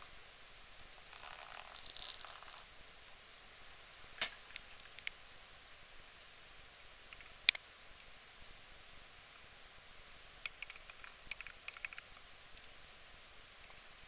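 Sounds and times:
room hiss: 0.0s - 14.0s
faint ticks: 10.4s - 12.7s.

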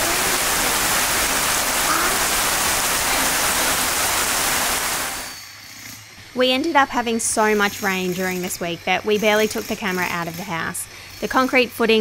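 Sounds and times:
heavy rain pouring: 0.0s - 5.3s.

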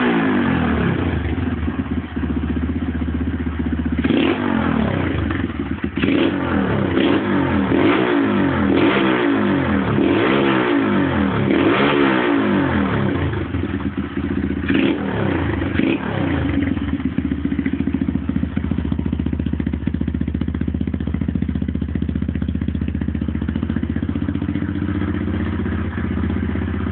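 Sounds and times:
motorcycle engine revving and idling: 0.0s - 26.9s.

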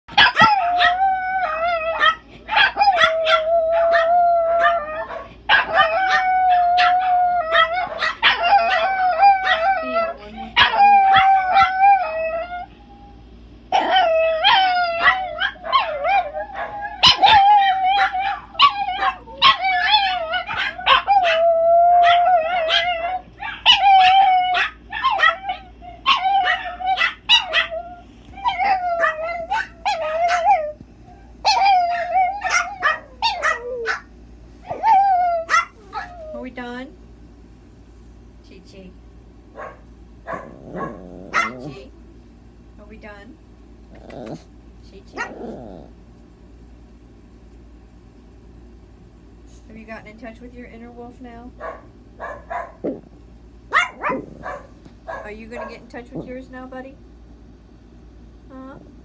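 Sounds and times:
dog howling and yipping: 0.2s - 36.5s, 40.3s - 41.9s, 45.1s - 45.9s.

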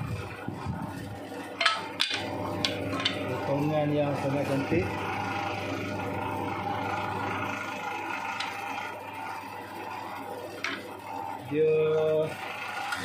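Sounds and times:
band saw running: 0.0s - 13.0s.

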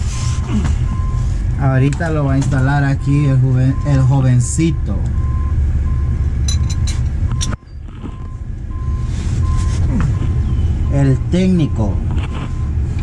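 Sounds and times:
steady low rumble: 0.0s - 13.0s
light metallic clinks: 6.4s - 7.6s
faint repeating beep: 10.8s - 12.0s.

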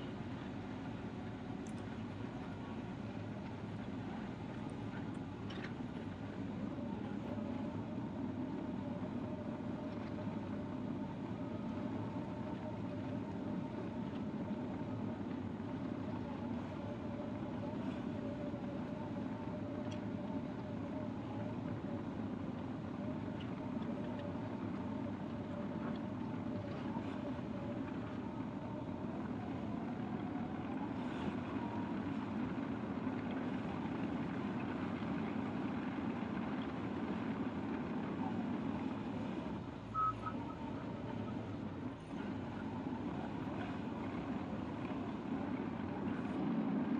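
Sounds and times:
faint steady whine: 0.0s - 46.9s
bulldozer diesel drone: 34.0s - 46.9s.

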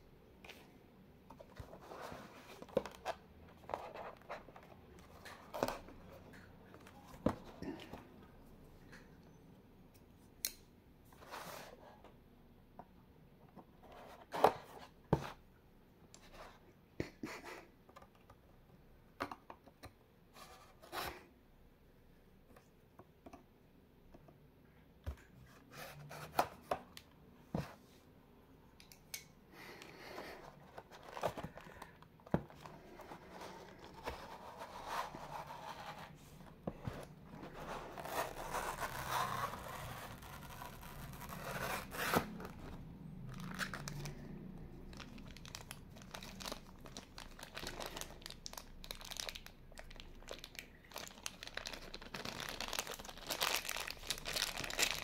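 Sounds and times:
cardboard sleeve scraping: 32.9s - 42.6s.

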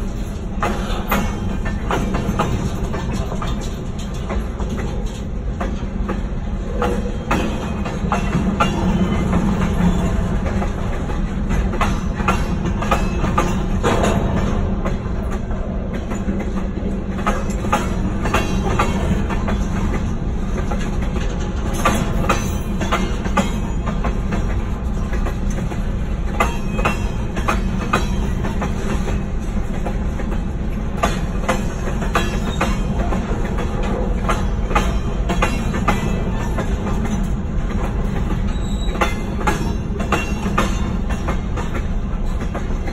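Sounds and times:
rolling train wheels rumbling: 0.0s - 42.9s
wheels clacking over rail joints: 0.0s - 42.9s.

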